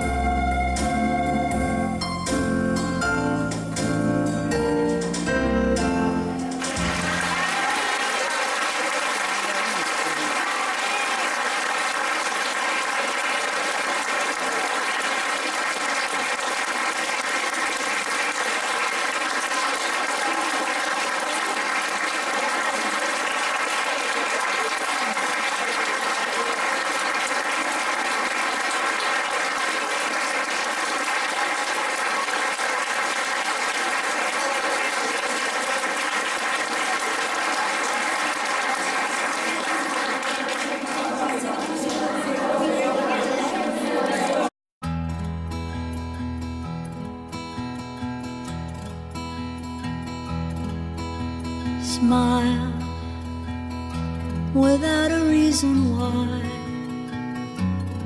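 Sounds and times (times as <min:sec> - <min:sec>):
audience applause: 0:06.3 - 0:44.5.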